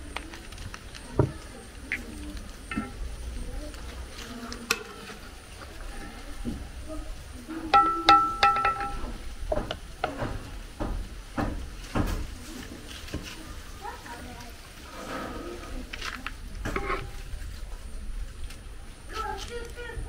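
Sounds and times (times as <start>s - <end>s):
utensils scraping metal pot: 1.9s - 3.1s, 16.6s - 17.3s
sharp clinks with ringing: 7.7s - 9.1s.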